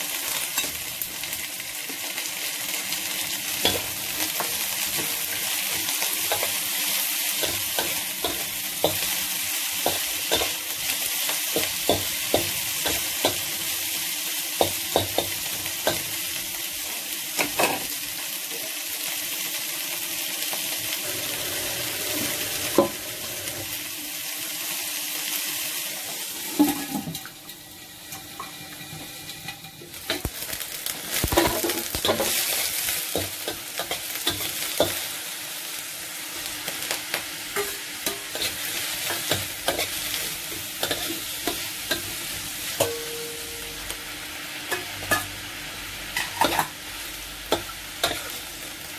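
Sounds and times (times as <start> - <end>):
vegetables sizzling in wok: 0.0 - 48.9.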